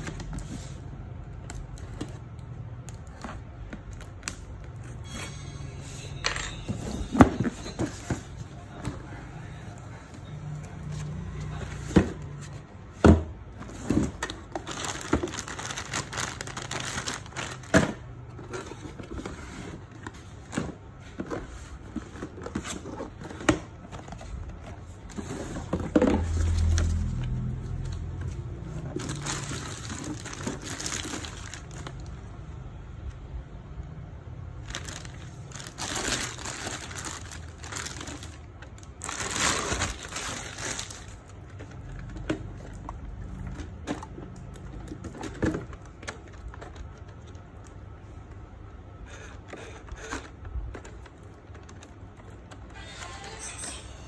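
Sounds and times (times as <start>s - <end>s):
plastic bag rustling: 13.4s - 32.4s, 34.5s - 48.0s.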